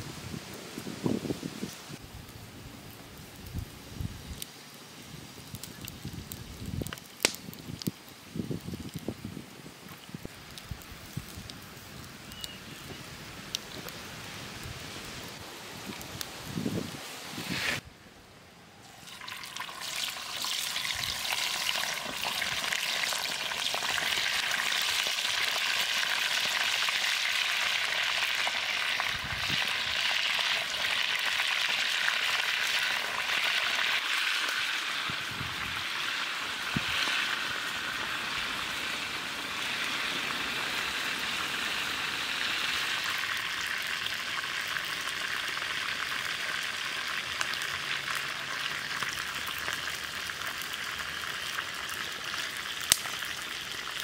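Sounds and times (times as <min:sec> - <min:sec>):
chicken sizzling in hot oil: 0:18.8 - 0:54.0.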